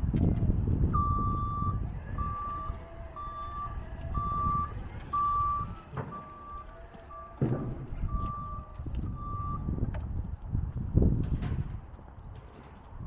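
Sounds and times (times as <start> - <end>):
low rumble of vehicle moving: 0.0 - 13.0
reversing alarm beeping: 0.9 - 9.9.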